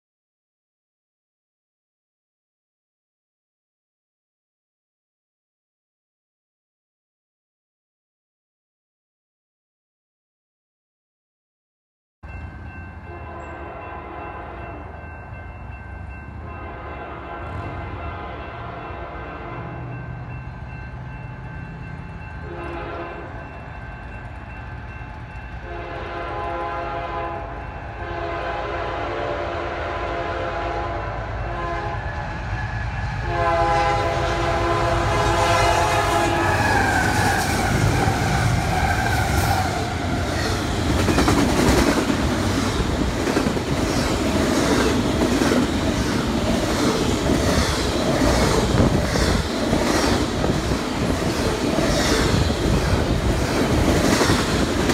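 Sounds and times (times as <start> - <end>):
diesel locomotive rumbling: 12.3 - 54.9
train air horn blasts: 13.1 - 14.9, 16.4 - 19.9, 22.4 - 23.4, 25.6 - 39.8
train wheel clatter: 36.5 - 54.9.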